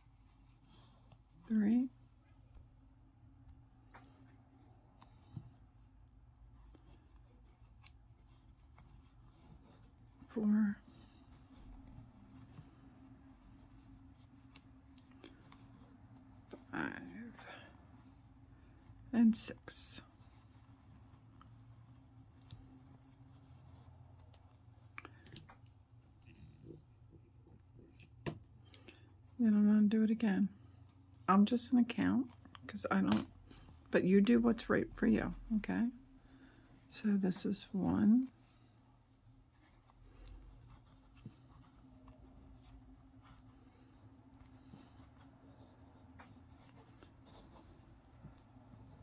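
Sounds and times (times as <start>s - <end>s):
low steady hum: 0.0s - 49.0s
crochet hook clicking and rustling: 5.0s - 17.2s, 44.4s - 49.0s.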